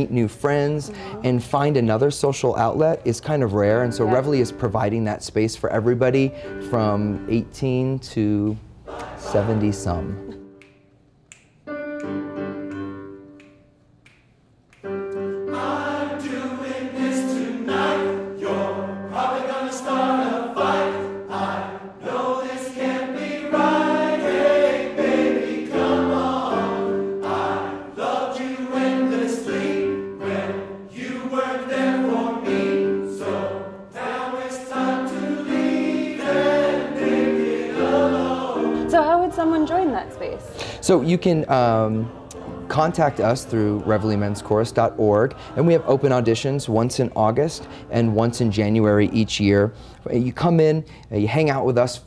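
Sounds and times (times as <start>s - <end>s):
men's chorus singing in harmony: 8.9s - 10.3s, 15.4s - 38.9s, 41.0s - 46.8s.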